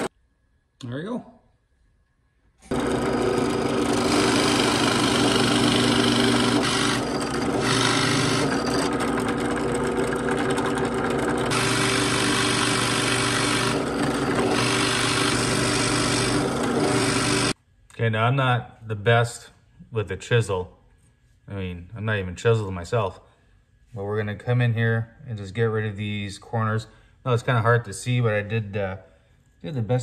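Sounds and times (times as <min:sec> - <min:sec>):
drill bit scraping into wood: 0:02.6 - 0:17.6
drill press motor hum: 0:02.6 - 0:17.6.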